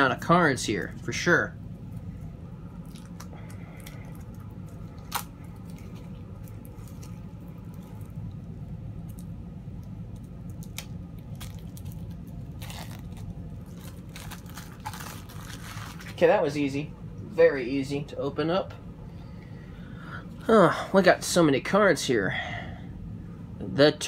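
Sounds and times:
steady low hum: 0.0s - 24.0s
packaging crinkle: 2.8s - 16.3s
packaging being torn open: 2.9s - 7.2s, 10.1s - 16.2s.

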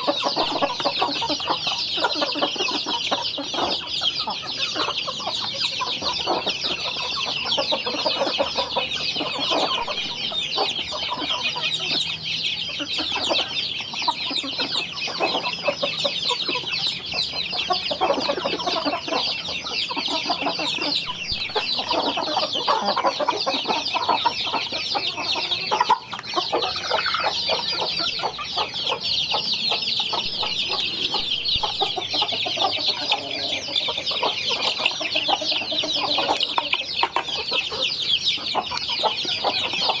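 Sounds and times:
chicks peeping: 0.0s - 40.0s.

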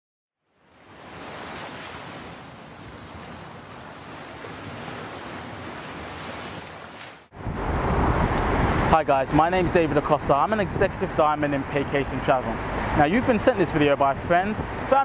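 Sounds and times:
ocean surf: 0.6s - 15.0s
loud outdoor noise: 7.3s - 15.0s.

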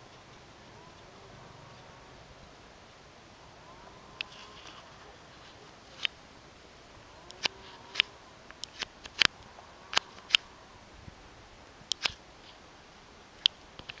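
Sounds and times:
faint steady hiss: 0.0s - 14.0s
sharp irregular clicks: 7.2s - 10.5s, 11.9s - 12.2s.

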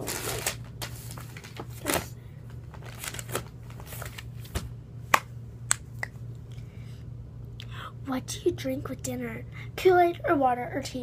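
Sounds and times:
low steady hum: 0.0s - 11.0s
finger clicks and snaps: 5.2s - 6.2s.

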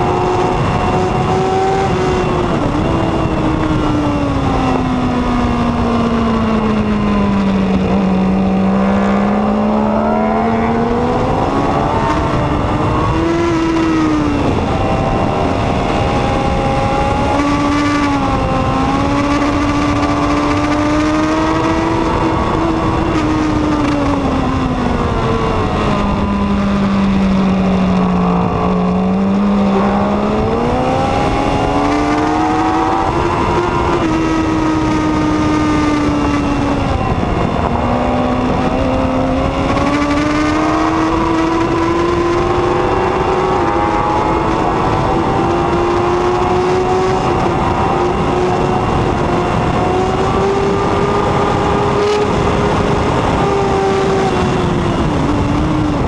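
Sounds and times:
motorcycle engine at racing speed: 0.0s - 56.0s
wind rushing over microphone: 0.0s - 56.0s.

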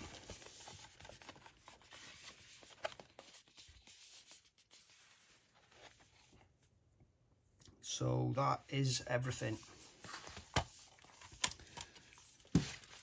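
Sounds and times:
cardboard rustling and tapping: 10.1s - 13.0s.

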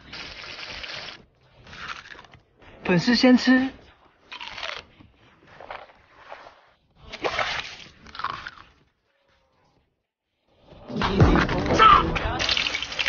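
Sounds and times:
crunchy chewing: 0.1s - 2.6s, 4.2s - 6.2s, 7.9s - 8.9s.

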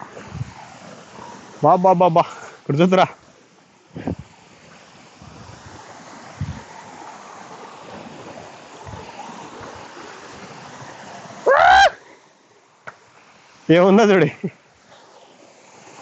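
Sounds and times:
waterfall rushing: 10.8s - 12.0s
man calling out: 11.5s - 11.9s.

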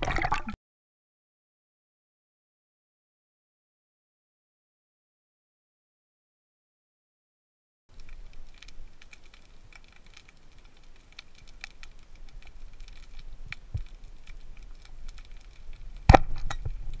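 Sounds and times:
underwater crackle of clicks: 7.9s - 17.0s.

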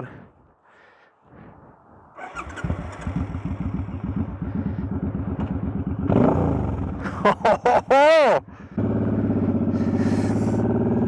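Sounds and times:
motorcycle engine starting and idling: 2.2s - 11.0s.

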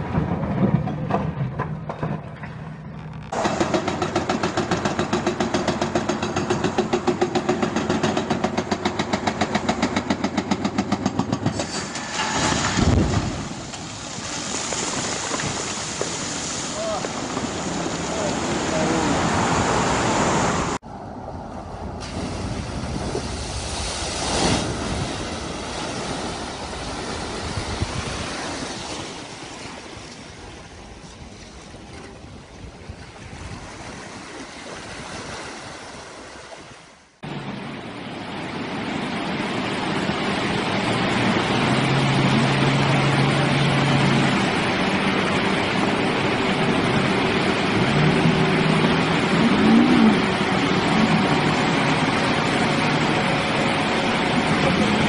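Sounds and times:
floodwater splashing around a car: 11.5s - 20.8s, 21.8s - 37.0s
surf: 11.5s - 20.8s, 22.0s - 55.0s
wind on microphone: 12.4s - 20.8s, 21.4s - 36.2s
truck engines humming: 37.2s - 55.0s.

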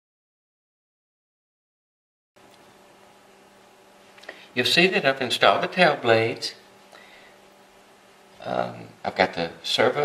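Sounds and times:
faint hum: 2.4s - 10.0s
low hiss: 2.4s - 10.0s.

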